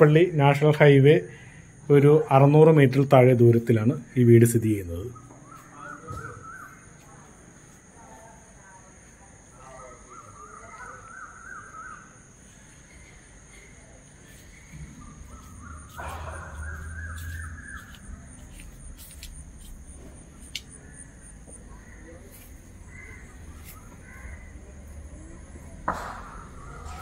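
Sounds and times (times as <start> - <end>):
steady high-pitched whine: 12.7 - 27.0
crows cawing: 15.3 - 18.3, 20.6 - 24.8.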